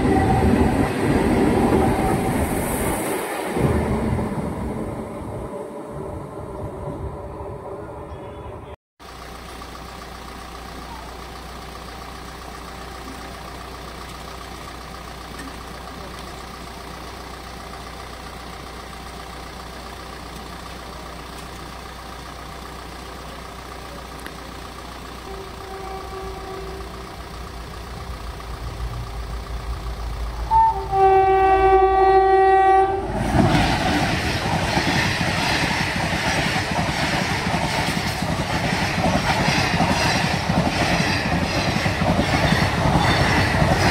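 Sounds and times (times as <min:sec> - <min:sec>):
train horn: 0:00.0 - 0:00.9, 0:25.2 - 0:27.2, 0:30.4 - 0:33.2
train wheels rattling on track: 0:09.4 - 0:43.9.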